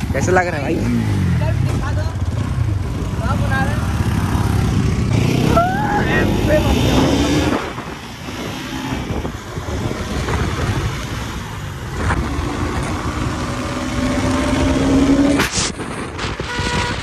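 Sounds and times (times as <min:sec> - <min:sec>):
motorcycle engine running: 0:00.0 - 0:06.7
wind rushing over microphone: 0:00.0 - 0:17.0.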